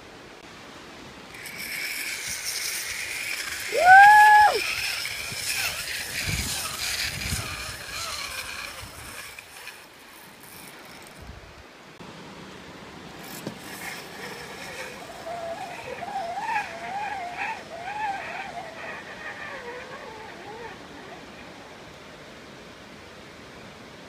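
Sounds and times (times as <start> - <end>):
zip line trolley whirring: 1.2 - 11.4, 13.2 - 22.2
person yelling: 3.7 - 4.6.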